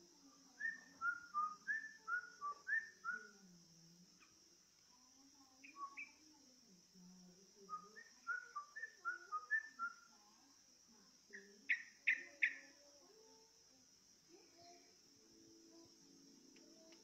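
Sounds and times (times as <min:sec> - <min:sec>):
bird whistled song: 0:00.6 - 0:03.4, 0:05.6 - 0:06.2, 0:07.7 - 0:10.1, 0:11.3 - 0:12.7.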